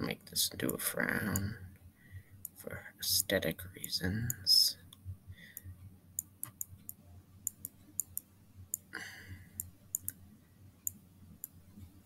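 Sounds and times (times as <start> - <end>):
computer mouse clicking: 5.6 - 8.9, 9.6 - 10.2, 10.8 - 11.9.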